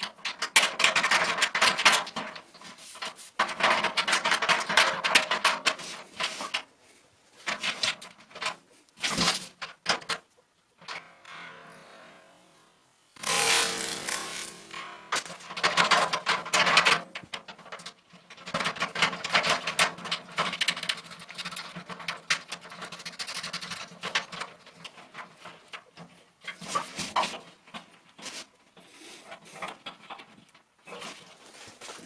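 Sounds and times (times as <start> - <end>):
knocks and clicks against can: 0.0 - 6.7, 15.1 - 27.9.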